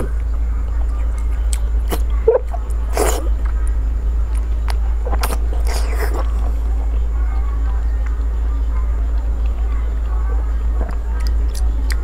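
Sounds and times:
steady low hum: 0.0 - 12.0
person chewing wetly: 1.2 - 3.3, 4.3 - 6.5, 10.8 - 12.0.

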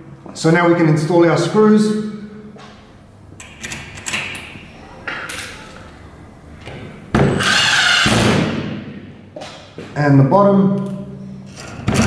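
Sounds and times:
cordless drill driving screw: 7.4 - 8.1.

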